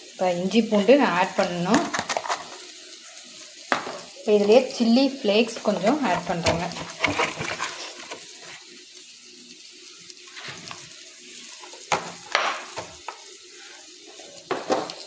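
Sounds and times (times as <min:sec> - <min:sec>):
steady hiss: 0:00.0 - 0:15.0
faint light scratching: 0:06.2 - 0:08.6.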